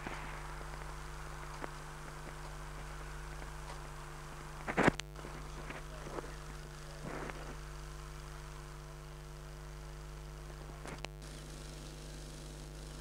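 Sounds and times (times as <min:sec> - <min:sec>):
faint clicks: 0:00.0 - 0:08.7, 0:10.8 - 0:11.4
buzzy tones: 0:00.0 - 0:13.0
electrical hum: 0:00.0 - 0:13.0.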